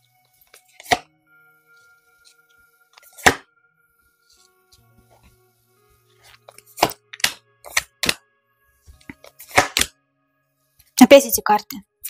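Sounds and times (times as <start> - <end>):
faint background music: 0.0 - 12.0
card deck taps and clicks: 0.5 - 1.0, 3.0 - 3.4, 6.5 - 8.2, 8.9 - 9.9
card slapping on table: 3.2 - 3.4, 6.8 - 8.2, 8.9 - 9.9.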